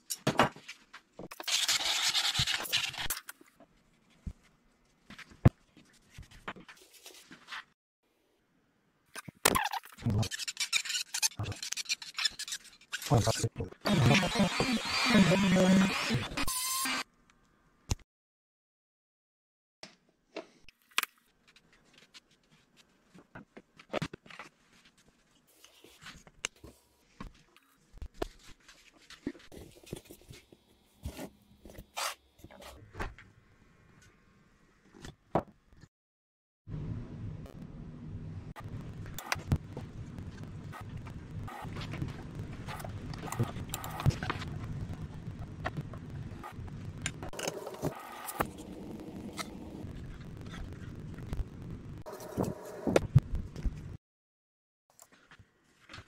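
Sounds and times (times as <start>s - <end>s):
screwdriver clicking and scraping on wood: 42.7s - 44.3s.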